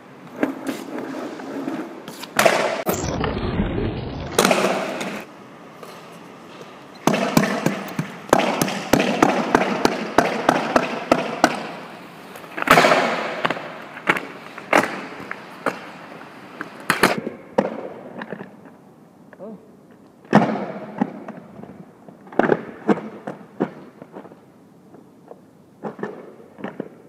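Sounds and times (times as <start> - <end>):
skateboard wheels rolling: 0.0 - 18.9, 19.9 - 27.0
skateboard deck clacking: 1.8 - 2.9.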